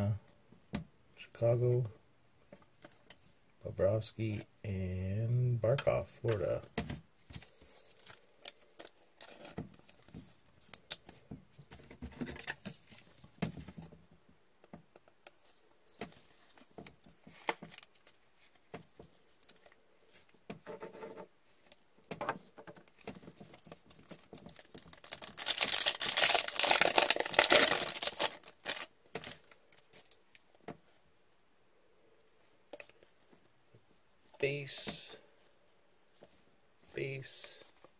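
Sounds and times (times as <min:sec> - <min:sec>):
cards tapping and rustling: 0:15.9 - 0:19.8, 0:21.6 - 0:30.8
foil wrapper tearing and crinkling: 0:24.5 - 0:29.5.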